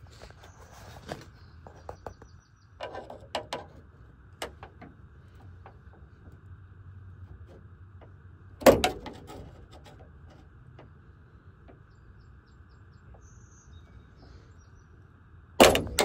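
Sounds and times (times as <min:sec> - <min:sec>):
loud metal clack: 0:08.6 - 0:09.9, 0:15.6 - 0:16.0.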